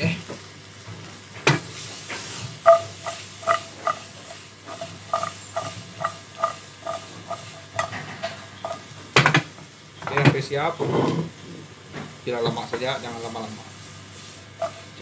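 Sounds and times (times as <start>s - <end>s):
wok knocking on burner grate: 1.4s - 1.7s, 2.6s - 10.4s.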